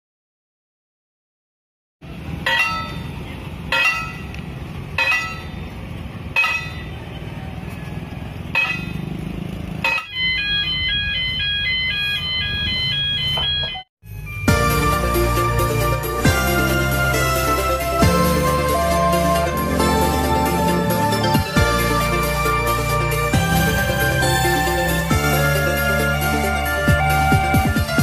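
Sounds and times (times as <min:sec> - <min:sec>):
crossing bell ringing: 0:02.4 - 0:07.0, 0:08.5 - 0:09.2, 0:09.8 - 0:28.0
electronic two-tone alarm: 0:09.9 - 0:15.0.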